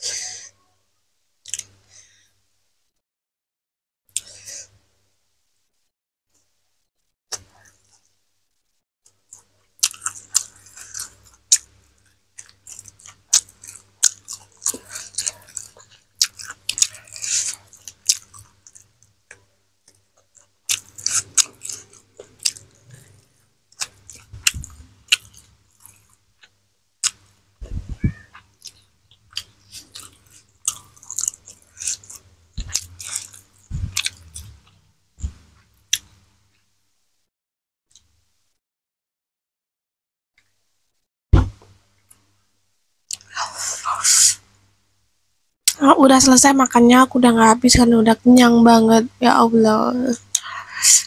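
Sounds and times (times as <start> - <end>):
chewing fried chicken: 9.1 - 27.4, 28.1 - 36.2
dull low thumps: 27.6 - 28.3, 33.7 - 34.6, 41.4 - 41.6.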